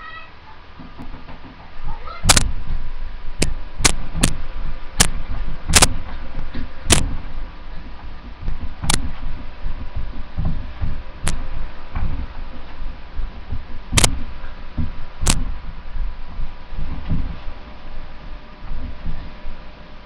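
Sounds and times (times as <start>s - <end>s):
faint steady hum: 0.0s - 20.0s
feet stomping on carpet: 0.8s - 19.7s
sharp clicks: 2.2s - 2.6s, 3.4s - 4.4s, 5.0s - 7.2s, 8.4s - 9.2s, 13.5s - 14.2s.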